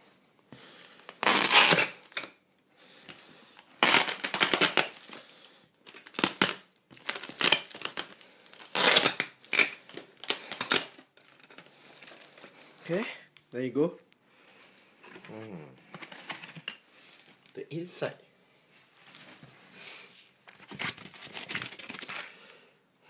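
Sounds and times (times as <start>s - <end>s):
plastic wrap crinkling: 0.9s - 2.4s, 3.0s - 12.9s, 20.4s - 22.4s.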